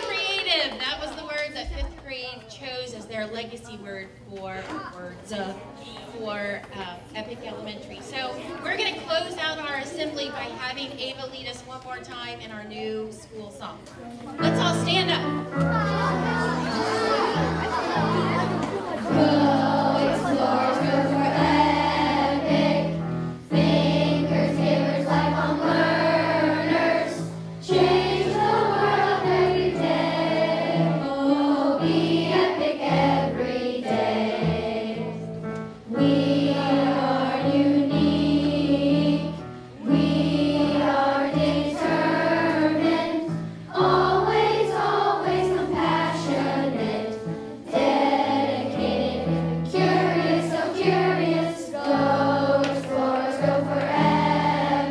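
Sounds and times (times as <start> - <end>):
musical accompaniment: 14.4 - 54.9
children singing in chorus: 15.7 - 54.9.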